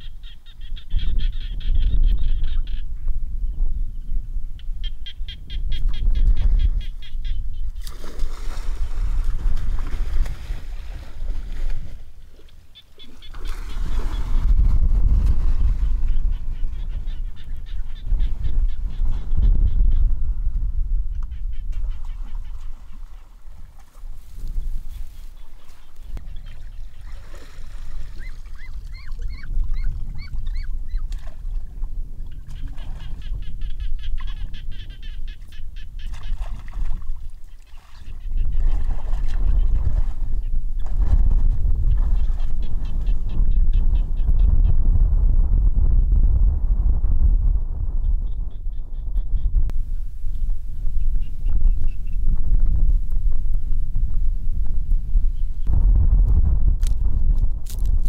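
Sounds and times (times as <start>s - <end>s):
splashing and churning water: 7.8s - 16.2s, 21.8s - 33.3s, 36.0s - 43.2s.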